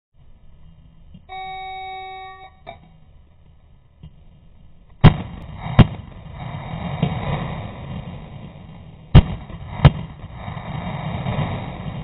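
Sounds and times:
electronic timer beep: 0:01.3 - 0:02.9
rifle shots: 0:05.0 - 0:12.0.

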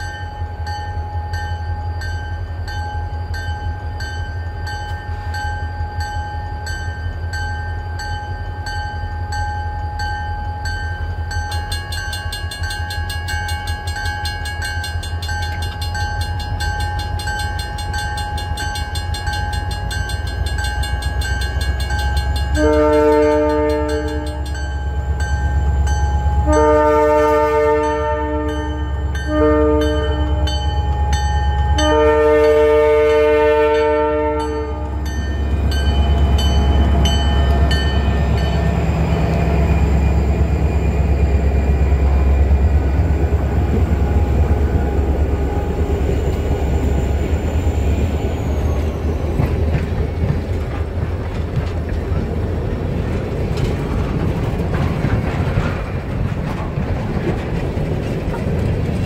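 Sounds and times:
crossing bell dinging: 0:00.0 - 0:51.0
diesel locomotives rumbling: 0:00.0 - 0:59.0
wheels on rails: 0:00.0 - 0:59.0
train horn blowing: 0:22.4 - 0:24.6, 0:26.4 - 0:35.2.

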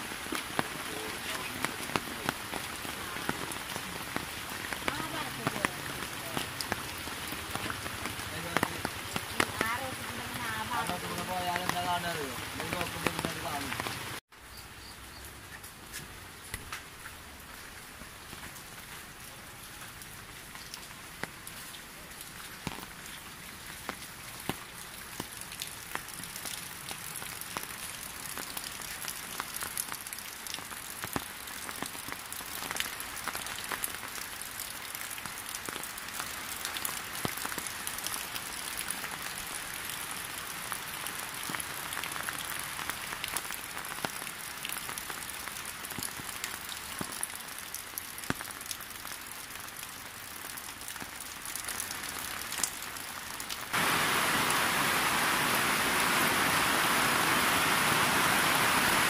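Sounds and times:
heavy rain falling: 0:00.0 - 0:14.2, 0:15.7 - 0:59.0
raindrops ticking sharply: 0:00.0 - 0:14.2.

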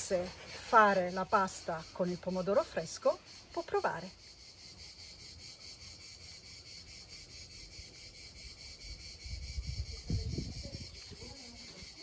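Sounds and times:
insects chirping: 0:00.0 - 0:12.0
low wind rumble: 0:08.8 - 0:11.3.

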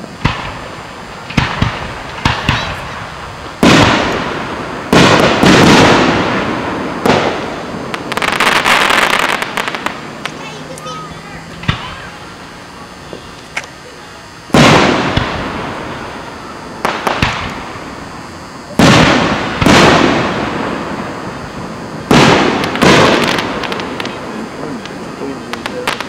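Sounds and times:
firework shells booming: 0:00.0 - 0:26.0
small firework pops: 0:16.8 - 0:17.6.

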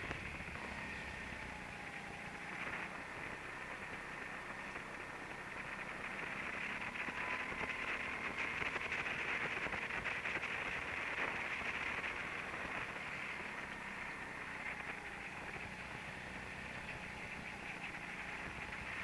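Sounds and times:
faint motor whine: 0:00.0 - 0:19.0
rushing wind and tyres: 0:00.0 - 0:19.0.

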